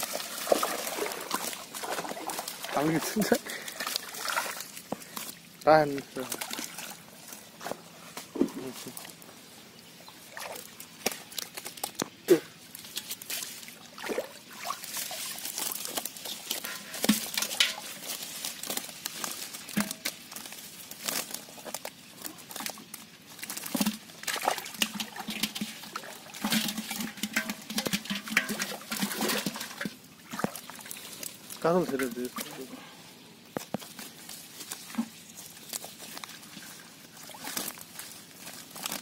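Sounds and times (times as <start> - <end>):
water splashing: 0.0 - 7.1, 10.2 - 11.6, 13.0 - 18.1, 23.5 - 32.8.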